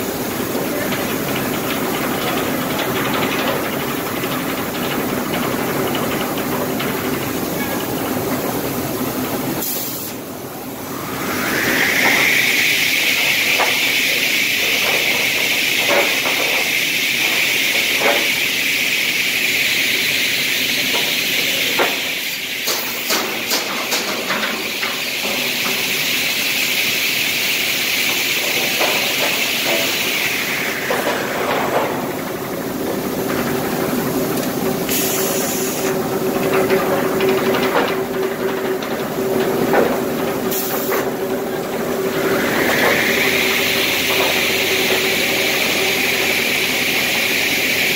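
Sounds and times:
circular saw blades whining: 10.6 - 15.6, 41.9 - 47.9.

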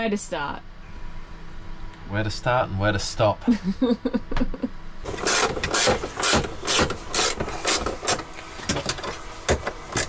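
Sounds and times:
hand tool short sharp strokes: 5.1 - 8.3.

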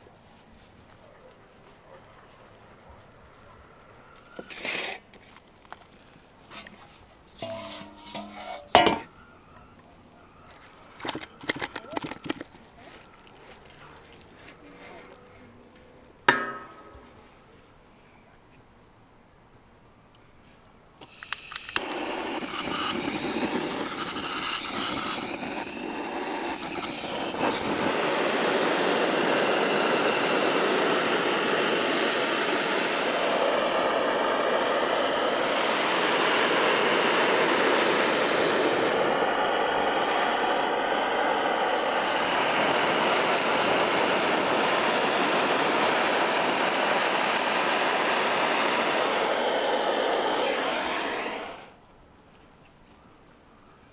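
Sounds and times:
blowtorch flame hissing: 4.0 - 5.4, 21.0 - 51.8
blowtorch igniter clicking: 11.0 - 12.5, 21.0 - 51.7.

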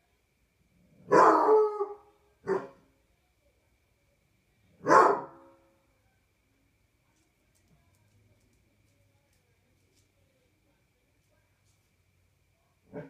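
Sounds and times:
dog baying: 1.1 - 2.8.

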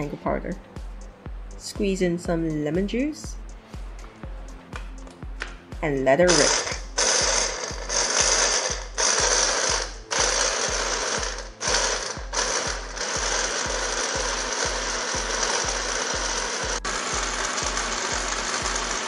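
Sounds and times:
stick blender chopping: 6.3 - 19.0.

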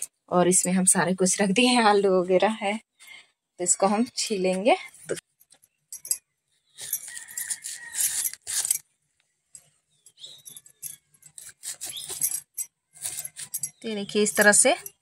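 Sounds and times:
glass bangles clinking: 5.4 - 8.9, 9.5 - 15.0
blade scraping tuber skin: 6.8 - 8.8, 11.2 - 13.8.

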